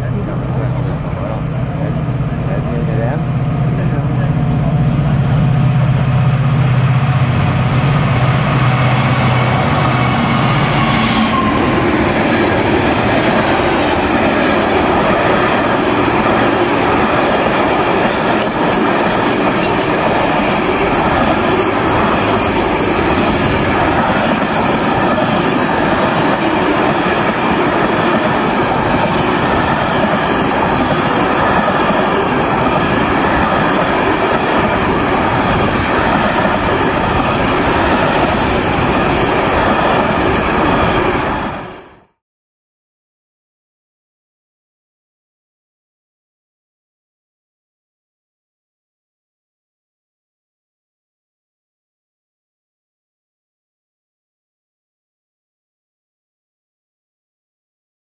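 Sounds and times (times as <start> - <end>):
locomotive hum passing: 0.0 - 42.1
train wheels clickety-clack on rails: 10.5 - 41.8.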